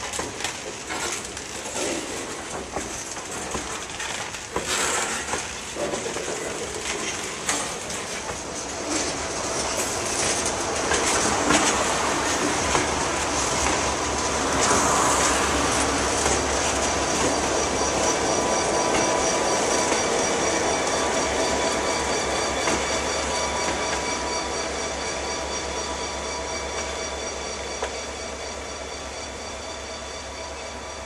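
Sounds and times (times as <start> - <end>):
train wheels clicking over rail joints: 0.0 - 29.7
wheel squeal: 6.2 - 31.0.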